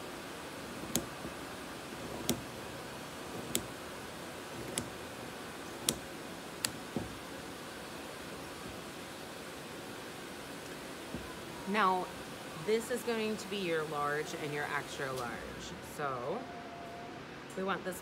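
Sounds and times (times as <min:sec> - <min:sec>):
scissors snipping fabric: 0:00.8 - 0:01.4, 0:02.0 - 0:05.1, 0:05.7 - 0:07.2.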